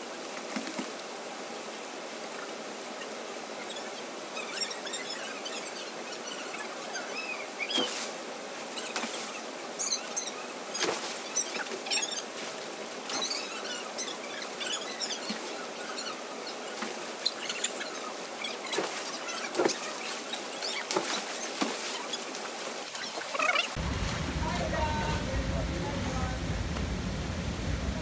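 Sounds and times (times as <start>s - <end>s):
river water rushing: 0.0s - 28.0s
swimmers splashing: 18.6s - 28.0s.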